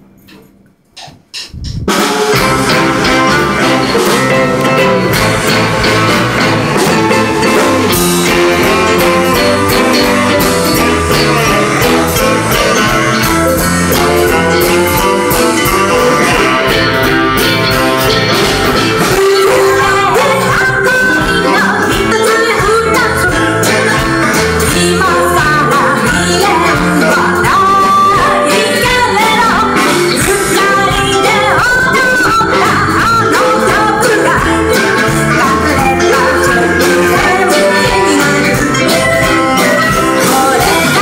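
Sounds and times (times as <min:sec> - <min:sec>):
live pop band playing: 0:00.2 - 0:41.0.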